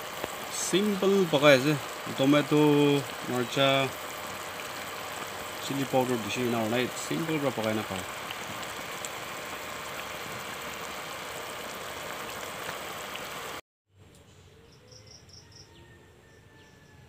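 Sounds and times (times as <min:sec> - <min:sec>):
pot boiling hard: 0:00.0 - 0:13.6.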